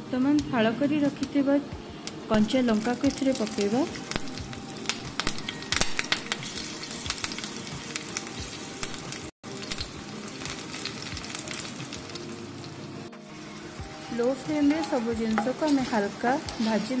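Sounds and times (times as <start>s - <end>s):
food frying in hot oil: 2.3s - 17.0s
crackles and pops: 3.4s - 12.3s.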